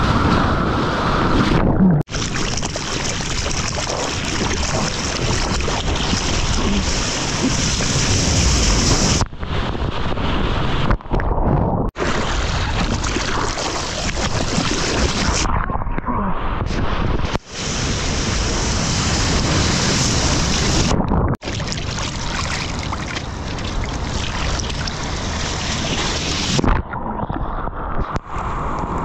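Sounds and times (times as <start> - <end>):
ocean surf rushing: 4.0 - 10.9, 16.4 - 21.0
wind buffeting the microphone: 4.7 - 13.0.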